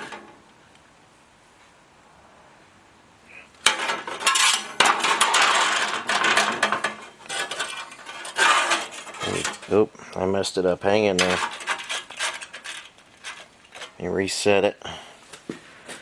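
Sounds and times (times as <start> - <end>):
sheet metal and tools clattering: 3.6 - 9.8, 11.0 - 14.1.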